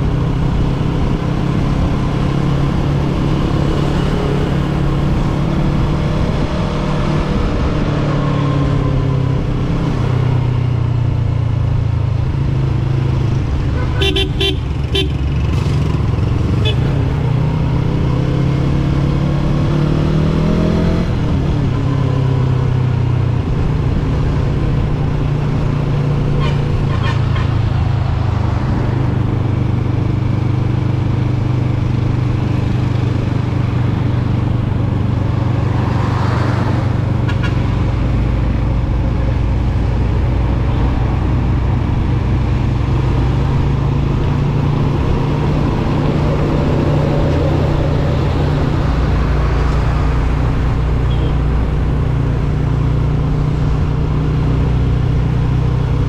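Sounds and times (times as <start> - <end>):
motorcycle engine revving: 12.2 - 56.0.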